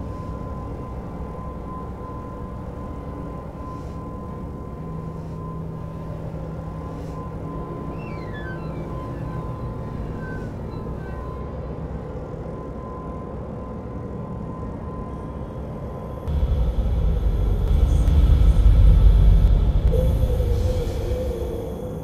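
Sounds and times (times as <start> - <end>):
wavering tone: 15.1 - 22.0
low droning rumble: 16.2 - 22.0
loud deep rumble: 16.3 - 22.0.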